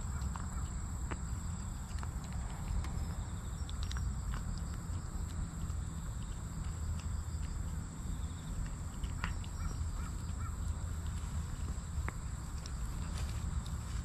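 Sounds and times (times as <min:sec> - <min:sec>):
cat chewing food: 0:00.0 - 0:14.0
high insect drone: 0:00.0 - 0:14.0
steady low rumble: 0:00.0 - 0:14.0
crow cawing: 0:09.2 - 0:10.7.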